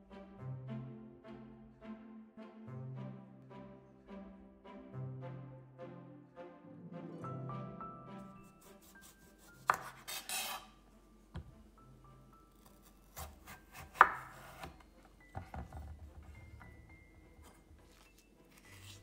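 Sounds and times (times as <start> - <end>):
knife scraping rasp: 8.6 - 10.8, 12.5 - 14.8, 17.8 - 19.0
knife knocking on cutting board: 11.4 - 11.6, 15.3 - 16.7.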